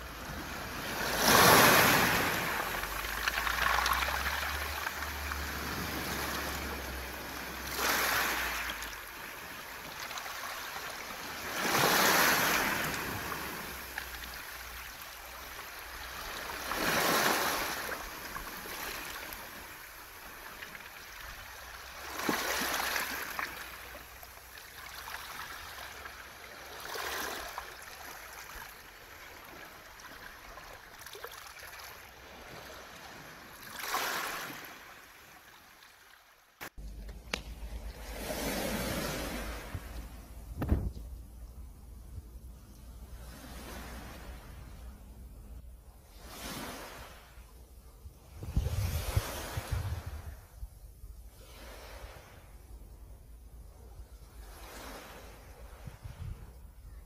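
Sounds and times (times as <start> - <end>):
waves washing over pebbles: 0.0 - 35.8, 36.6 - 41.0.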